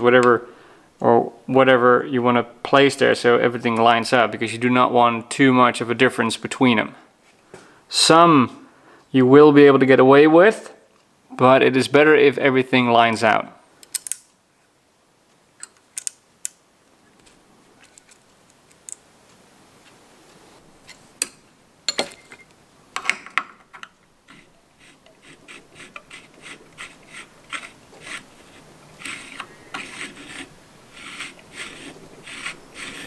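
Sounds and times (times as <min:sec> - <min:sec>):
small metal parts clicking: 0:13.8 - 0:14.3, 0:15.6 - 0:16.6.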